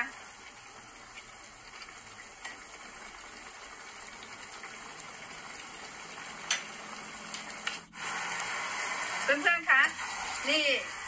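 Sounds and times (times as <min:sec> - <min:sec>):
mushrooms sizzling in a frying pan: 0:00.0 - 0:11.0.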